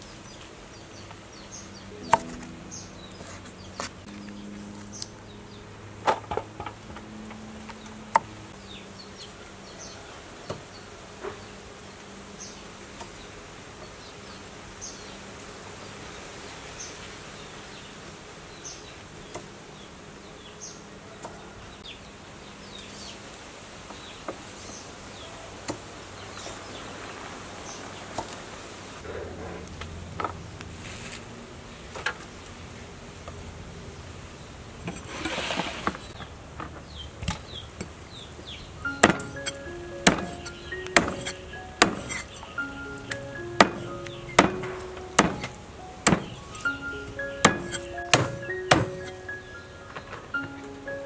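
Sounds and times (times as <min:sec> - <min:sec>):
fly buzzing: 0:38.9 - 0:49.6
vegetable stalks knocking in basket: 0:43.6 - 0:45.5, 0:46.1 - 0:46.5.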